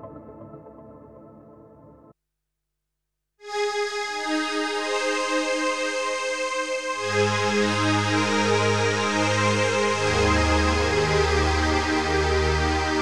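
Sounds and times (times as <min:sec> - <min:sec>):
synthesizer pad chord pulsing: 0:03.4 - 0:13.0.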